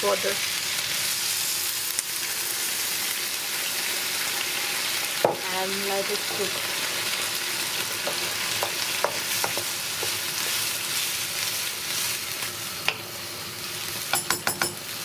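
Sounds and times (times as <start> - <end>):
vegetables sizzling in a wok: 0.0 - 15.0
wooden spoon knocking on pan: 8.0 - 10.2, 14.1 - 14.8.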